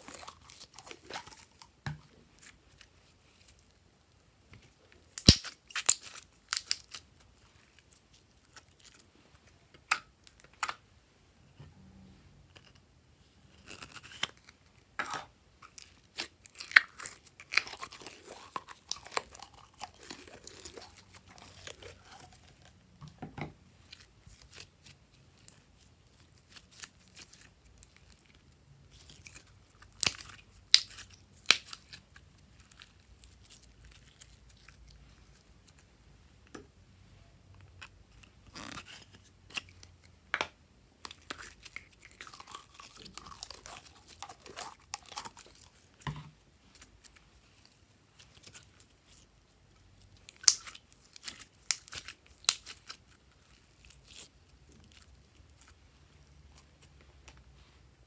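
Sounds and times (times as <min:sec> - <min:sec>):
slime snapping: 0:05.2 - 0:06.8.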